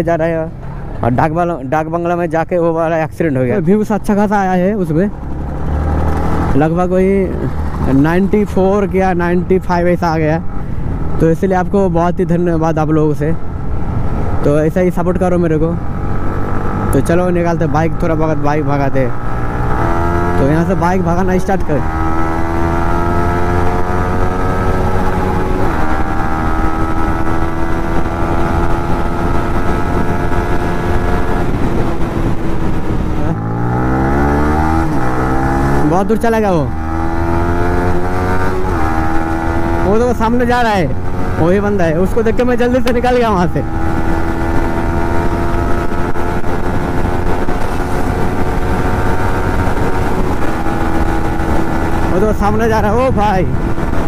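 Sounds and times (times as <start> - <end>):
wind and road noise rumble: 0.0 - 54.0
motorcycle engine accelerating: 0.2 - 12.0, 13.3 - 54.0
wind rushing: 21.8 - 35.8, 43.5 - 54.0.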